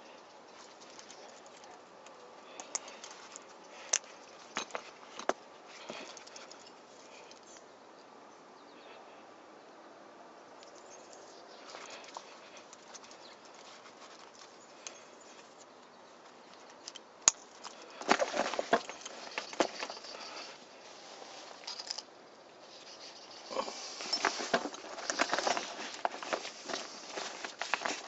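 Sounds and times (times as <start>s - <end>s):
fabric rustling and crackling: 17.8s - 22.0s, 23.8s - 28.0s.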